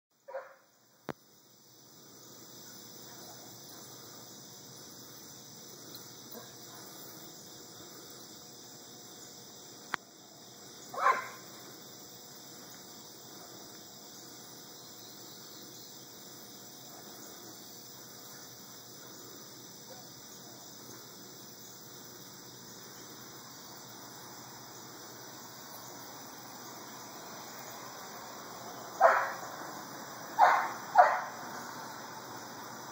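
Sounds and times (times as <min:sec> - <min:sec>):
crickets chirping: 0:00.1 - 0:32.9
dog barking: 0:00.3 - 0:00.6, 0:10.9 - 0:11.4, 0:29.0 - 0:29.4, 0:30.4 - 0:31.4.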